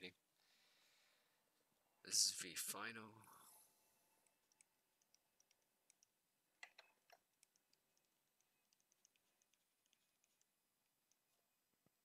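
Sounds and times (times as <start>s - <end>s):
stylus tapping on a screen: 4.5s - 11.3s.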